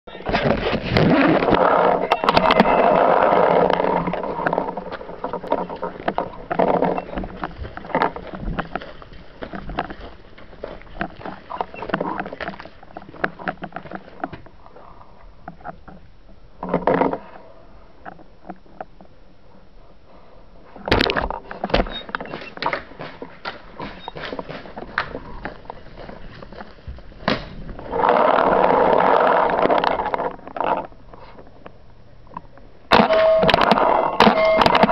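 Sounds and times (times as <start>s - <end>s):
footsteps: 0.1s - 14.5s, 20.9s - 27.9s
rubbing and rustling noise: 0.2s - 1.9s, 3.3s - 16.0s, 20.1s - 31.5s
gear clicks and knocks: 0.3s - 14.5s.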